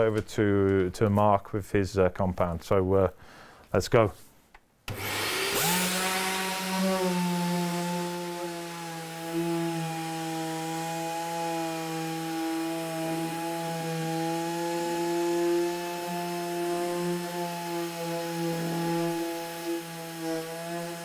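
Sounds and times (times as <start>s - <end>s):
orbital sander running: 4.9s - 21.0s.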